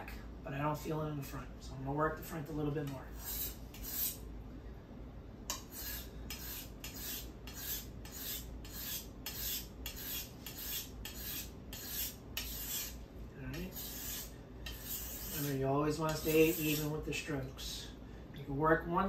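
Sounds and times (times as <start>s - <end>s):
knife scraping on whetstone: 3.1s - 4.2s, 5.5s - 17.0s.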